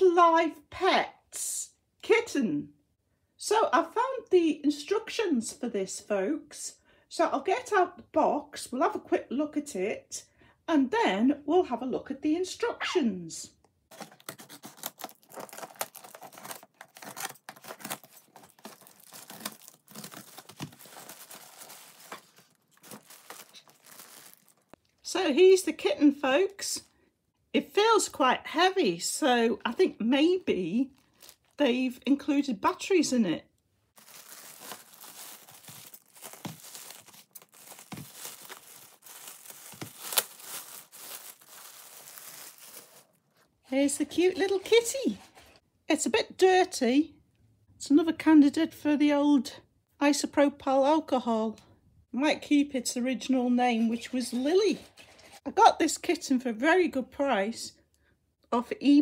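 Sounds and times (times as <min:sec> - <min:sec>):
cardboard flaps rustling: 0:13.9 - 0:24.6, 0:34.0 - 0:43.0
tape tearing: 0:13.9 - 0:24.8, 0:34.0 - 0:43.2
plastic bag crinkling: 0:13.9 - 0:25.0, 0:30.9 - 0:31.6, 0:34.0 - 0:43.5.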